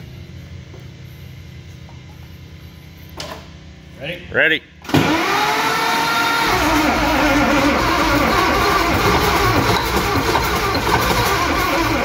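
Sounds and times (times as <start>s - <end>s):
starter cranking diesel engine: 4.8s - 12.0s
engine firing unevenly: 6.4s - 12.0s.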